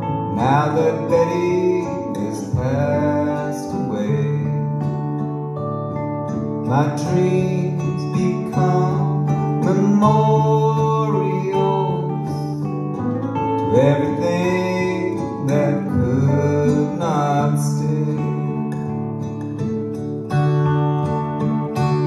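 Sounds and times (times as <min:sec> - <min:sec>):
acoustic and electric guitars: 0:00.0 - 0:22.0
man singing: 0:00.2 - 0:04.9, 0:06.6 - 0:12.7, 0:13.6 - 0:18.9.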